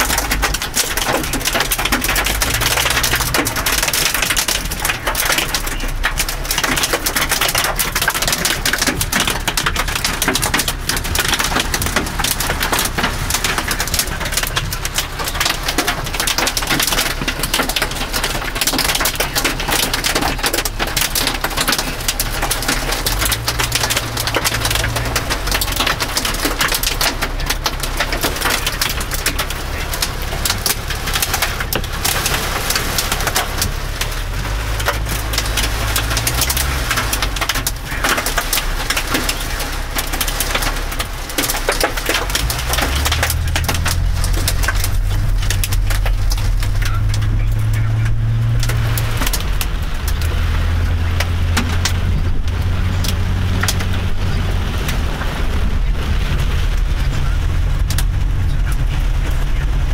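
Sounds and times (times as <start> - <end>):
hail and rain on car roof: 0.0 - 59.9.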